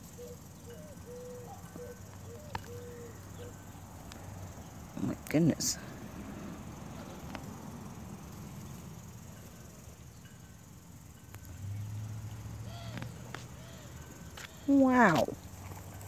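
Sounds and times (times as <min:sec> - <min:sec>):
rustling and scraping in soil: 0:14.3 - 0:16.0.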